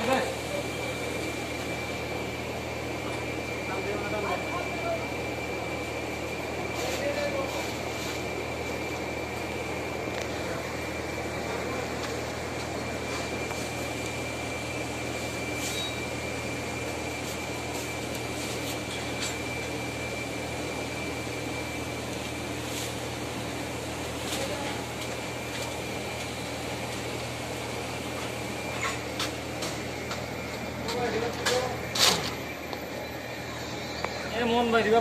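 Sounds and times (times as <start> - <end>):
machinery and fans humming: 0.0 - 35.0
faint high whine: 25.7 - 35.0.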